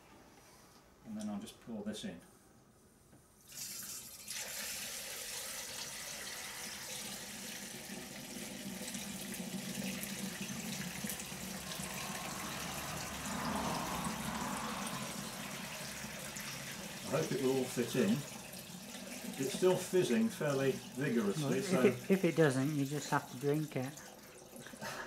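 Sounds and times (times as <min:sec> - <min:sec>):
liquid pouring into glass jar: 0:03.4 - 0:22.1.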